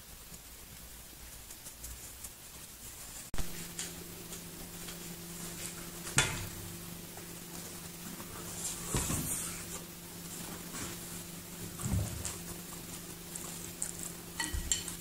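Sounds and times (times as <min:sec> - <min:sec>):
steady low hum: 0:00.0 - 0:15.0
kitten thumping and scuffling: 0:07.6 - 0:13.0.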